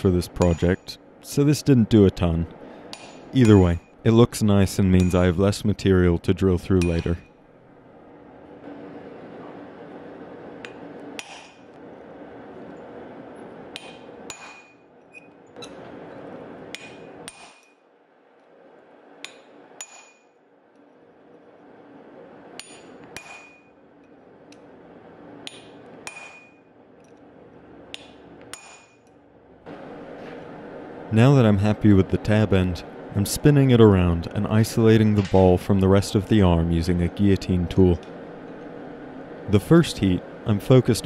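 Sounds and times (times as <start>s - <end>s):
steady background hum: 0.0s - 41.0s
hammer striking metal punch: 10.6s - 11.6s, 13.7s - 14.8s, 16.7s - 17.8s, 22.6s - 23.7s, 25.4s - 26.6s, 27.9s - 29.0s.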